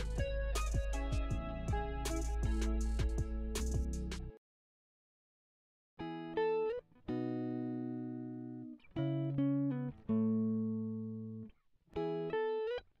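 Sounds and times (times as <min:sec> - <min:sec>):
plucked string melody: 0:00.0 - 0:04.4.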